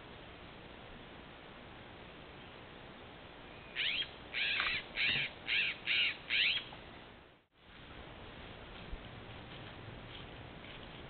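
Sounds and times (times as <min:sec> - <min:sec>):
scrub-jay harsh calls: 0:03.8 - 0:06.7.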